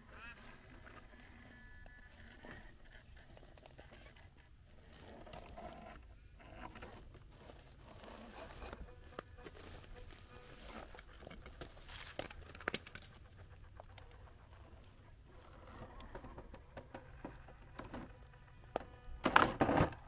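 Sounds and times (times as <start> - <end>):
dry leaves crunching under tyres: 7.4 - 13.4.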